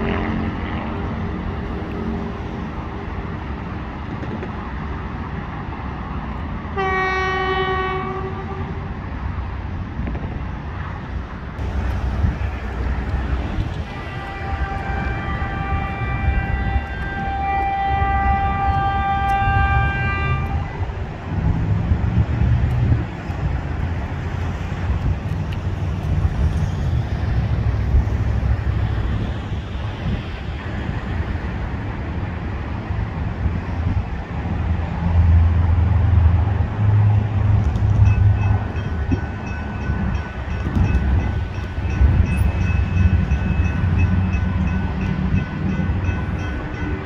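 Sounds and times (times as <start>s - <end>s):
train rumbling: 0.0s - 47.0s
train horn chord: 6.8s - 8.8s, 13.8s - 20.8s
crossing bell ringing: 37.9s - 47.0s.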